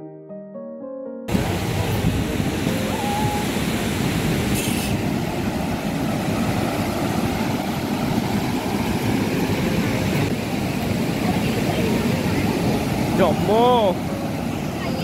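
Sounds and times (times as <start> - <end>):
water roaring through spillway: 1.3 - 15.0.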